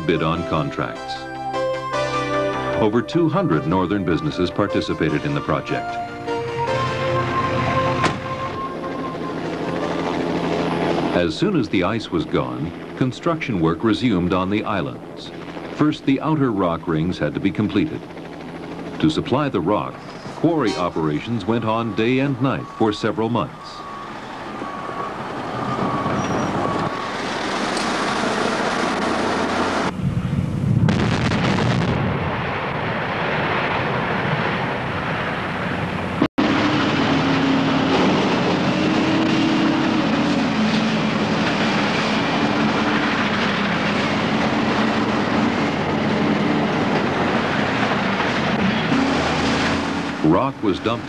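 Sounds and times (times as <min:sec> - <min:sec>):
steady low drone: 0:00.0 - 0:31.4.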